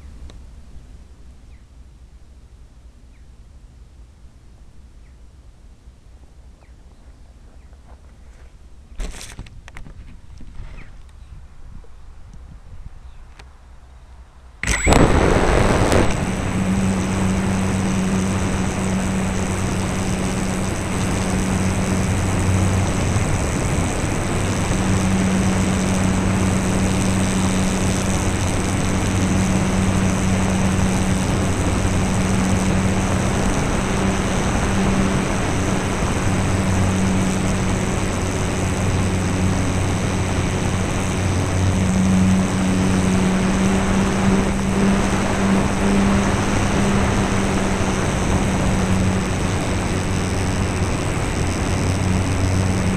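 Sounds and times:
electric motor whining: 14.6 - 52.9
rushing air: 14.6 - 52.9.

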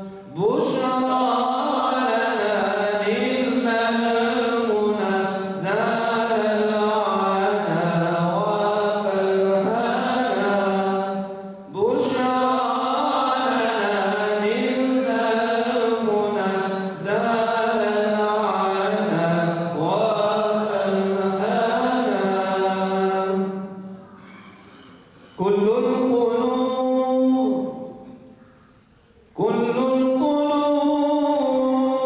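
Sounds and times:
men chanting unaccompanied: 0.4 - 23.4.

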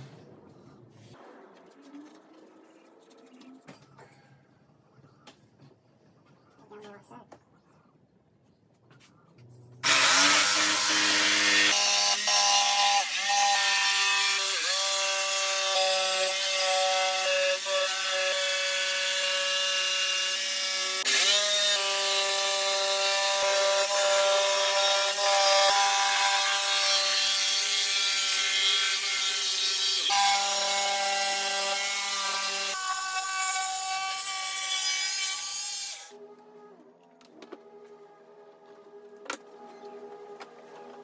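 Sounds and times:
jigsaw cutting wood: 9.8 - 34.3.

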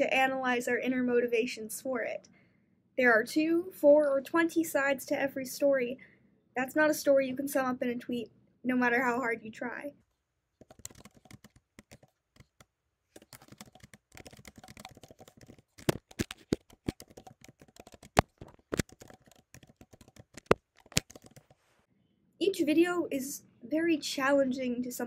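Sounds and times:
keyboard typing: 10.6 - 21.6.

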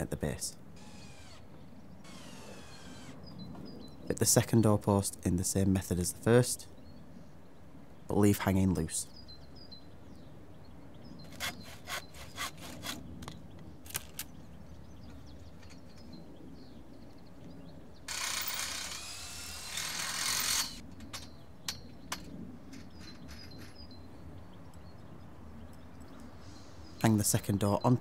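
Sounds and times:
power drill boring into wood: 0.8 - 1.4, 2.1 - 3.2, 18.1 - 20.8.

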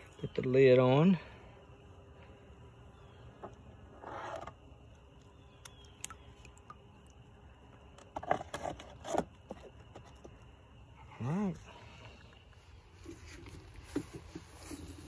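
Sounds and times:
plastic lid scraping: 3.9 - 4.6.

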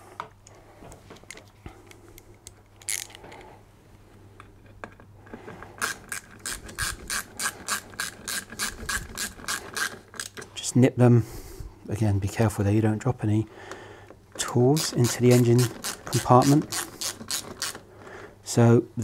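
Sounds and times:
faint handling noise: 0.0 - 7.0
hand ratchet clicking: 5.8 - 10.4, 14.8 - 17.8.

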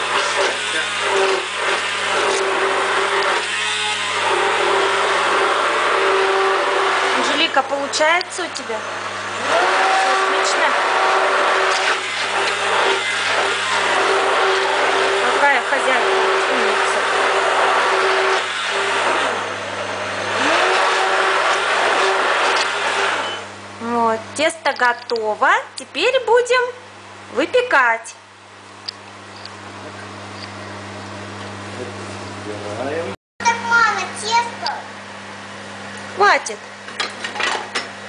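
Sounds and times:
batter churning: 0.0 - 7.6, 9.2 - 23.3
immersion blender running: 0.0 - 24.6.

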